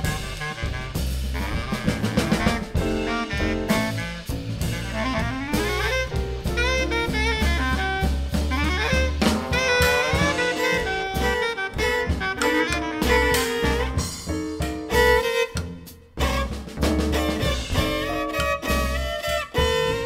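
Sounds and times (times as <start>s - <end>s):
drum kit: 0.0s - 20.0s
plucked double bass: 0.0s - 20.0s
reed instrument lead line: 0.0s - 20.0s.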